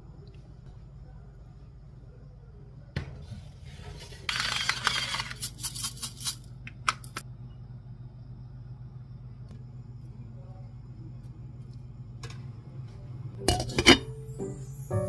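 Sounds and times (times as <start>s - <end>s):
low steady hum: 0.0s - 5.3s, 6.4s - 15.0s
seasoning grinder grinding and clicking: 4.3s - 6.4s.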